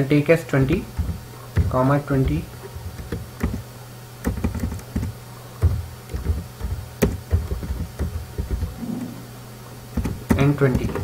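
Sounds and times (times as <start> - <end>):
low electrical hum: 0.0 - 11.0
computer keyboard keystrokes: 4.2 - 8.7.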